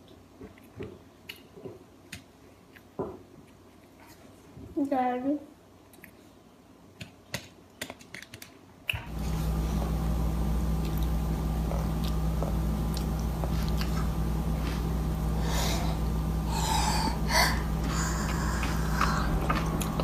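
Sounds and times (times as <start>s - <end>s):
low room hum: 0.0s - 20.0s
toddler chewing: 10.8s - 15.8s, 16.5s - 20.0s.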